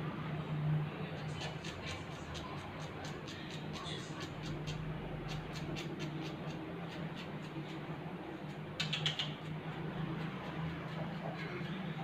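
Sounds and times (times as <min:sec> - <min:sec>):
scissors snipping fur: 0:01.2 - 0:11.8.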